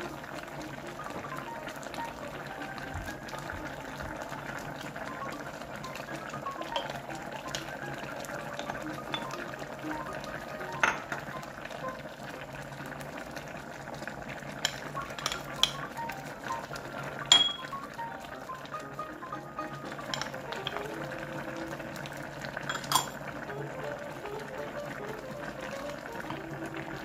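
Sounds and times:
soft background music: 0.0s - 27.0s
stew bubbling in a pot: 0.0s - 27.0s
spoon clinking against pot: 6.7s - 7.0s, 14.6s - 15.9s, 17.3s - 17.7s, 20.0s - 20.8s, 22.6s - 23.2s.

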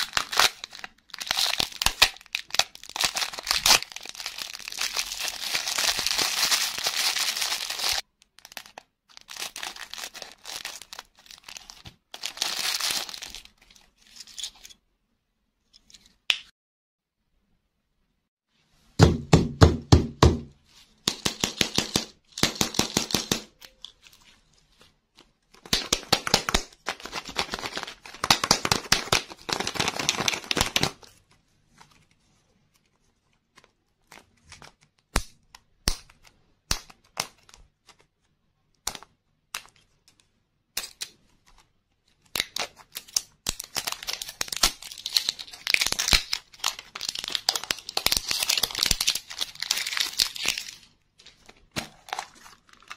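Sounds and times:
plastic wrapper crinkling and tearing: 0.0s - 14.6s, 23.5s - 32.2s, 41.5s - 52.9s.

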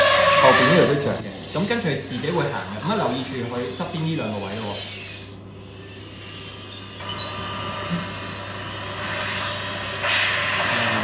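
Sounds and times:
toy hissing engine-like effect: 5.8s - 11.0s.

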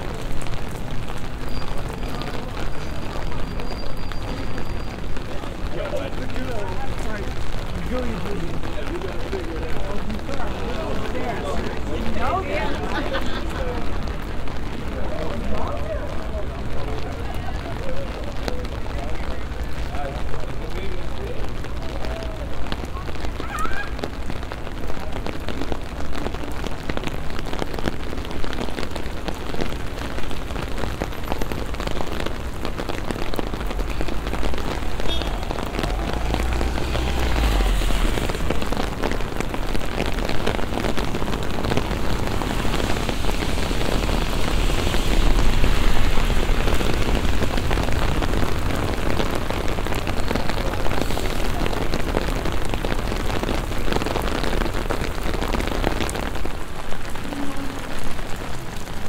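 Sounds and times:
rain pattering on pavement: 0.0s - 59.0s
low rumbles: 30.3s - 56.2s.

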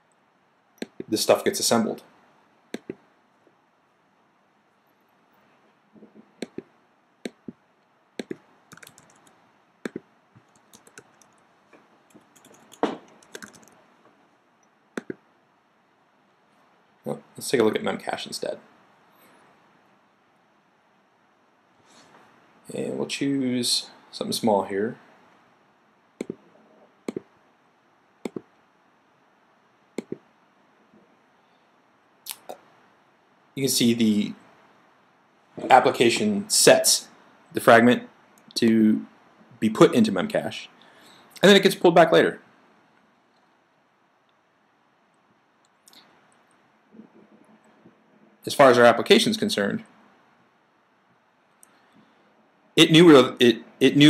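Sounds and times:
faint hiss: 0.0s - 54.0s
computer mouse clicking: 2.7s - 3.0s, 6.4s - 7.6s, 8.2s - 11.4s, 12.1s - 13.8s, 14.6s - 15.2s, 26.2s - 26.4s, 28.2s - 28.5s, 30.0s - 30.2s
keyboard typing: 2.8s - 3.0s, 8.2s - 11.4s, 12.1s - 13.8s, 15.0s - 15.2s, 26.2s - 26.4s, 30.0s - 30.2s.

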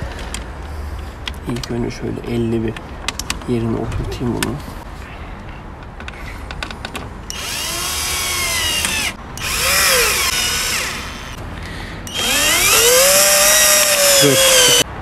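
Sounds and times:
cordless drill motor whine: 7.3s - 11.4s, 12.1s - 14.8s.

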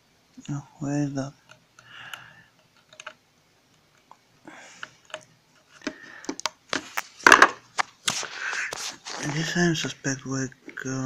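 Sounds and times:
rustling: 4.7s - 10.0s
plastic toy clattering on table: 5.8s - 7.6s.

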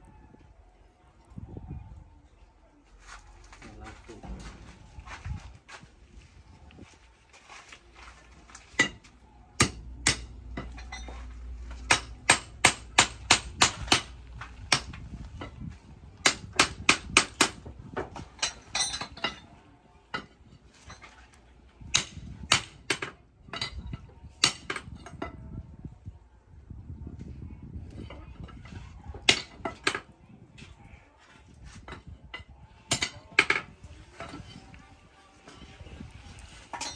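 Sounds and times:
hammer striking hot steel on anvil: 9.6s - 11.2s, 11.9s - 15.0s, 16.2s - 17.6s, 21.9s - 23.8s, 24.4s - 24.9s, 32.9s - 33.7s.

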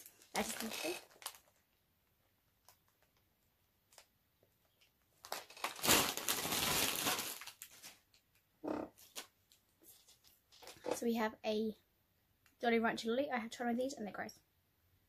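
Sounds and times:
plastic bag rustling and crinkling: 0.0s - 1.7s, 5.2s - 8.2s.

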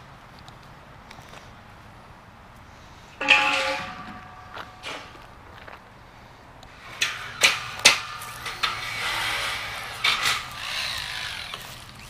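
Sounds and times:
metal clanks and knocks: 3.2s - 5.5s, 6.8s - 10.7s
rough metal scraping: 3.2s - 5.5s, 6.7s - 12.0s.

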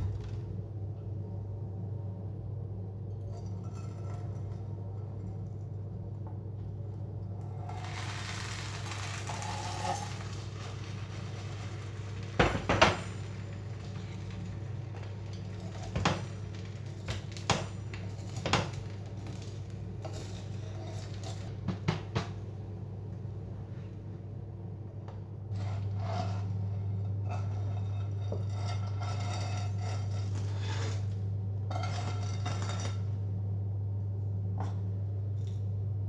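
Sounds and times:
low hum: 0.0s - 36.0s
pastry sizzling in a pan: 7.4s - 21.2s.

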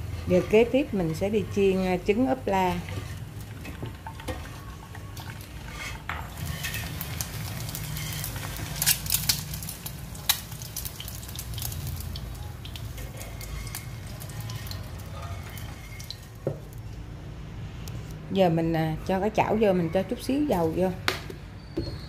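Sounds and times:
egg sizzling in oil: 0.0s - 16.5s.

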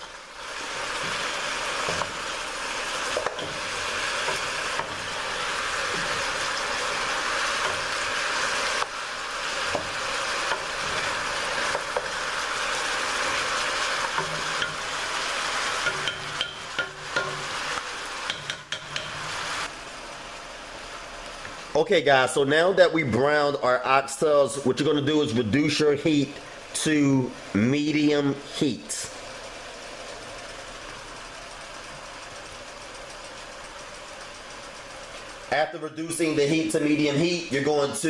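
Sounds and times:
meat sizzling in hot oil: 0.0s - 21.7s, 25.6s - 38.0s
wooden spoon scraping and knocking pot: 3.1s - 5.2s.

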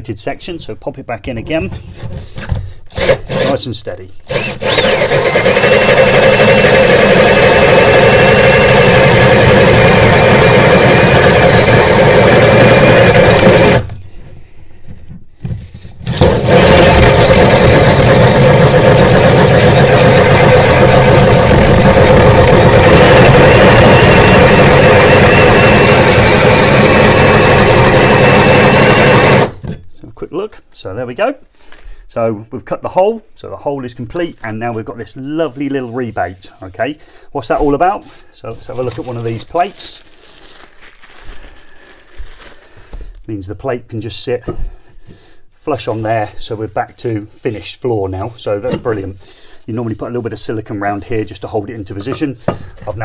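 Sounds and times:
drill hole saw cutting chipboard: 2.9s - 3.7s, 4.3s - 13.9s, 16.0s - 29.6s.

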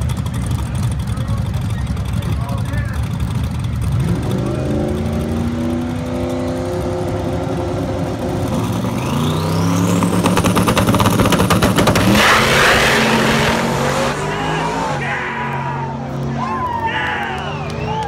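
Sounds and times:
car engine revving: 0.0s - 17.9s
car launching rush: 8.9s - 17.0s.

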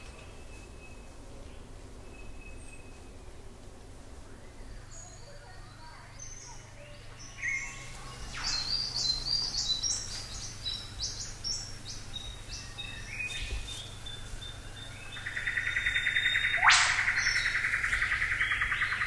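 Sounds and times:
birds chirping and whistling: 7.2s - 19.0s.

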